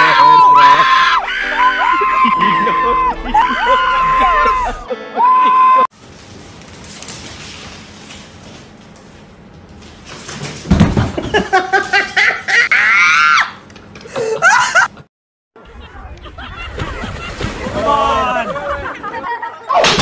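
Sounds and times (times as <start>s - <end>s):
alpaca shrieking cries: 0.0s - 4.9s
alpaca falling on tiled floor: 6.0s - 12.1s.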